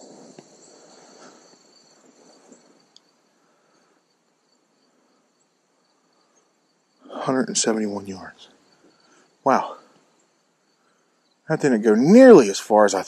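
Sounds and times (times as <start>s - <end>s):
soft rustle: 0.0s - 7.0s
high-pitched insect song: 0.0s - 13.0s.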